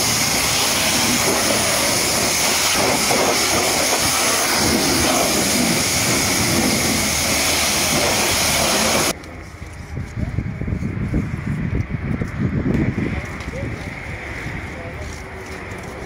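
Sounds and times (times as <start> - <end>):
high-pressure water jet spraying: 0.0 - 9.2.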